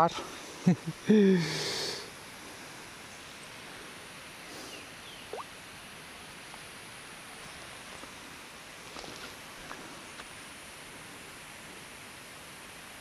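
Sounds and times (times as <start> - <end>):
faint outdoor background hiss: 0.0 - 13.0
faint rising chirp: 4.7 - 5.5.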